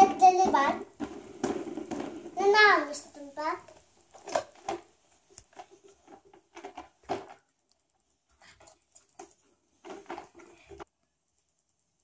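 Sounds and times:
plastic toy pram handling: 0:00.0 - 0:02.7, 0:03.7 - 0:04.9, 0:05.5 - 0:07.4, 0:08.6 - 0:10.8.

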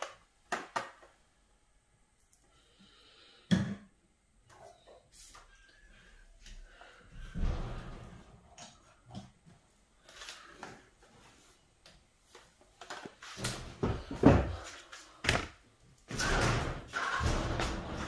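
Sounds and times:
objects knocking and rustling: 0:12.3 - 0:18.0.

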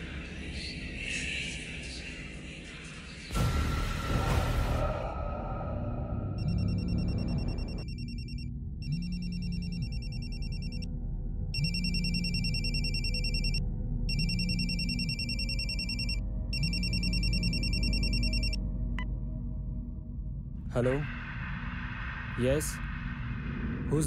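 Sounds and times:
phone ringing electronic trill: 0:11.6 - 0:18.6.

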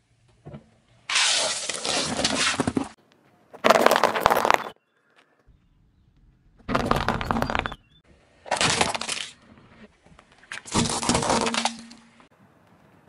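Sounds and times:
tyre crunching brittle objects: 0:01.1 - 0:04.8, 0:08.4 - 0:09.4, 0:10.2 - 0:12.1.

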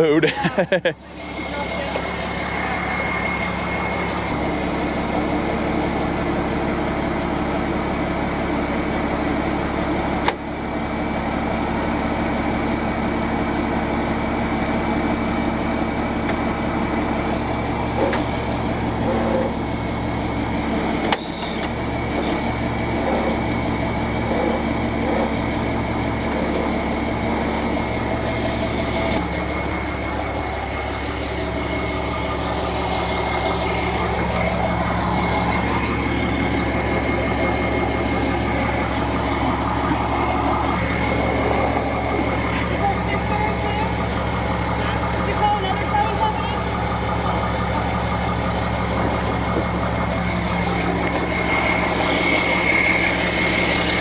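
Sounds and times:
truck engine idling: 0:00.0 - 0:54.0.

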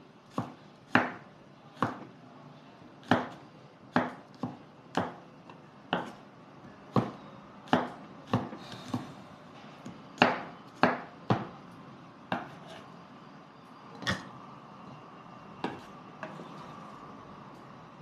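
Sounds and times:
knife chopping on wooden board: 0:06.9 - 0:09.1, 0:10.2 - 0:11.5.

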